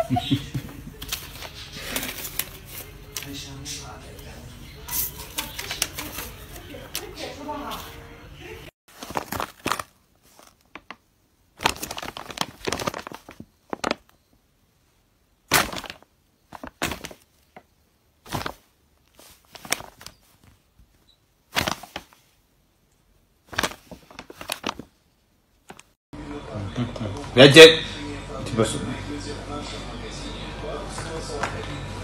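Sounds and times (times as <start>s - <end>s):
paper bag crinkling: 0.9s - 3.5s, 4.9s - 8.0s, 8.9s - 14.3s, 15.5s - 20.7s, 21.5s - 22.4s, 23.5s - 25.0s, 25.6s - 26.0s.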